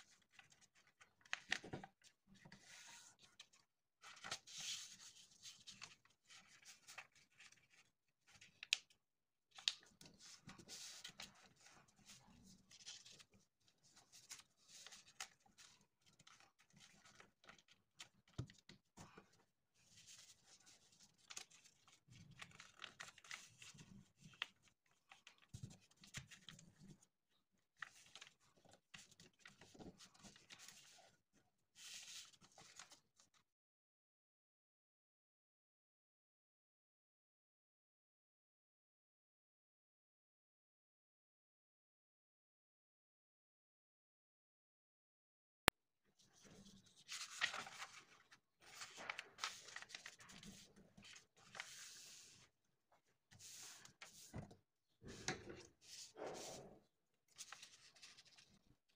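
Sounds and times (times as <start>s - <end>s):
paper rustling and creasing: 0.1s - 8.8s, 9.6s - 19.2s, 19.8s - 27.0s, 27.8s - 31.0s, 31.8s - 33.0s, 46.4s - 52.5s, 53.3s - 58.7s
crisp paper fold clicks: 9.6s - 10.0s, 46.4s - 52.3s.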